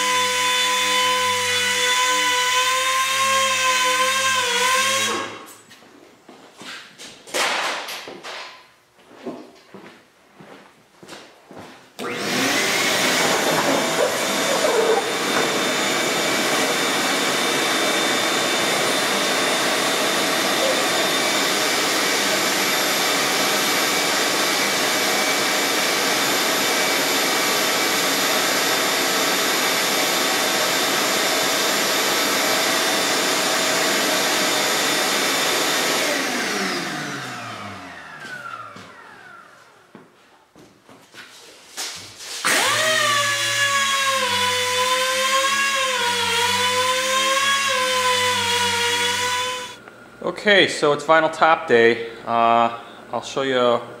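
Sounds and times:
shop vacuum running: 0.0 - 5.7, 12.0 - 40.1, 41.8 - 54.0
motor winding down whine: 12.0 - 24.1, 27.8 - 39.6, 42.5 - 49.8
vacuum hose on car roof: 12.0 - 39.4, 42.4 - 44.0.

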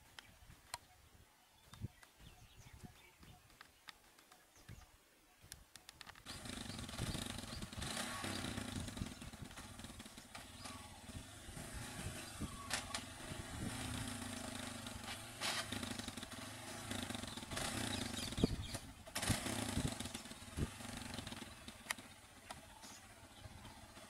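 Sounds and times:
small engine revving: 6.2 - 24.0.

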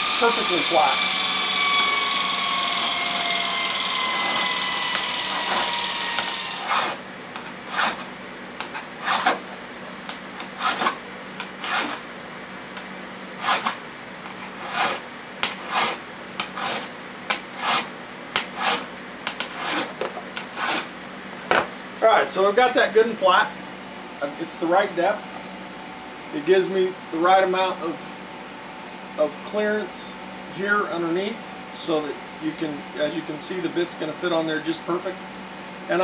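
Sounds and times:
grinder spinning down: 0.0 - 7.0
file scraping steel: 3.6 - 7.0, 7.7 - 9.4, 10.4 - 12.0, 13.4 - 13.8, 14.4 - 20.9.

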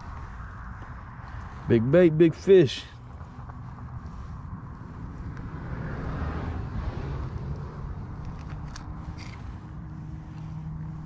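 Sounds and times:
steady low rumble: 0.0 - 11.0
short clicks and scrapes: 8.2 - 9.6.

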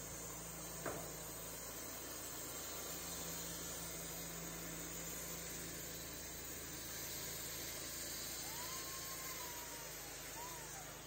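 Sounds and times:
steady machine noise: 0.0 - 11.0
faint whistle-like glide: 5.2 - 11.0.

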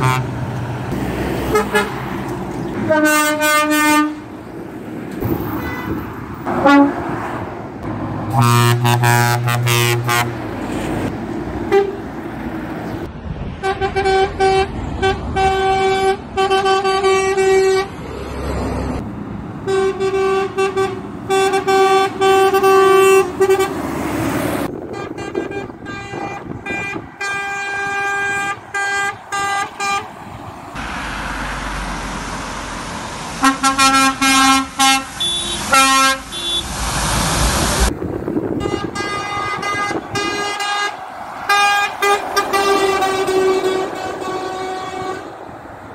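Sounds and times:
truck horns blasting: 0.0 - 4.4, 5.2 - 7.3, 8.2 - 12.1, 13.6 - 18.0, 19.6 - 30.2, 33.4 - 36.8, 38.3 - 45.6
traffic and engine noise: 0.0 - 45.9.

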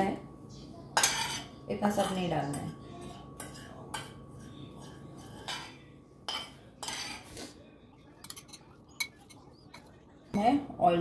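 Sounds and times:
spoon clinking against bowl: 1.0 - 7.3, 8.1 - 10.0
metal spoon scraping a pan: 1.0 - 7.6, 8.2 - 9.9.

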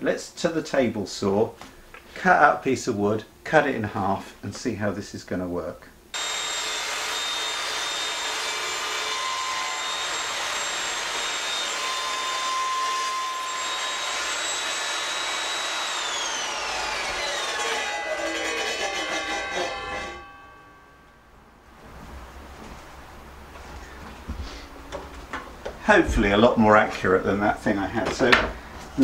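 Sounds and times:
table saw whining: 6.2 - 21.2.

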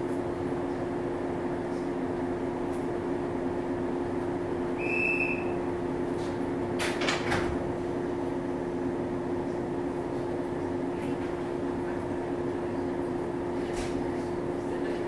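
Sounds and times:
train equipment two-note hum: 4.2 - 6.0
short high beep: 4.8 - 5.6.

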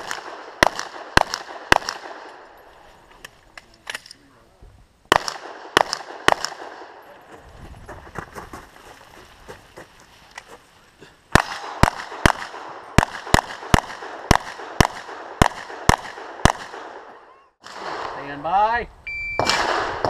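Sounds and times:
pistol shots: 0.0 - 2.4, 5.1 - 7.0, 11.3 - 18.3, 19.4 - 20.0
shuffling: 7.1 - 11.2.

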